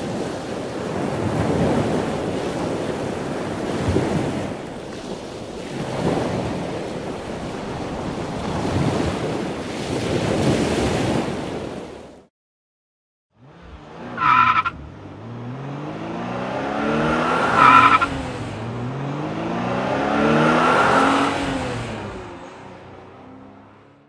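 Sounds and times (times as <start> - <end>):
car engine revving: 13.3 - 24.0
tyre squeals: 14.2 - 14.8, 17.5 - 18.1.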